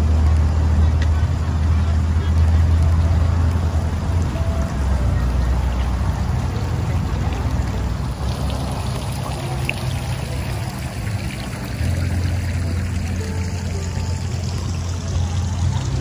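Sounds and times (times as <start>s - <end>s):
fountain water splashing: 0.0s - 16.0s.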